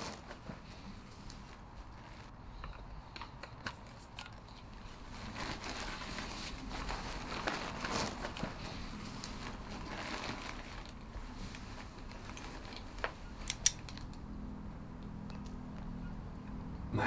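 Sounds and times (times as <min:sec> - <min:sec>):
bag rustling and crinkling: 0:00.0 - 0:02.3, 0:03.6 - 0:14.1.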